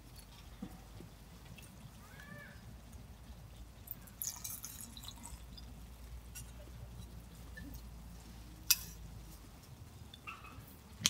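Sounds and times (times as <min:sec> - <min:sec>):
liquid pouring into metal mug: 0:04.2 - 0:05.7.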